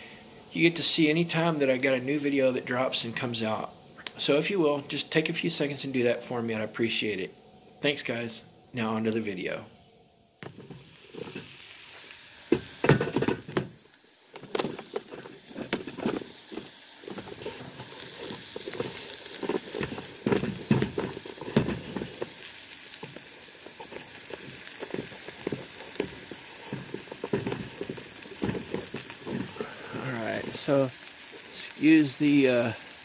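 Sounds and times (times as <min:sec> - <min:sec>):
steak sizzling in a pan: 0:10.4 - 0:33.0.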